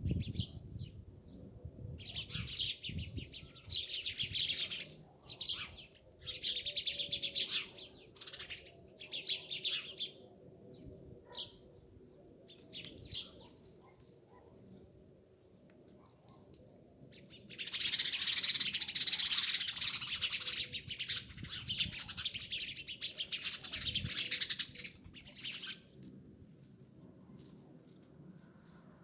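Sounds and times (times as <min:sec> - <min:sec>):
sparrows chirping: 0:02.0 - 0:15.0, 0:16.8 - 0:25.9.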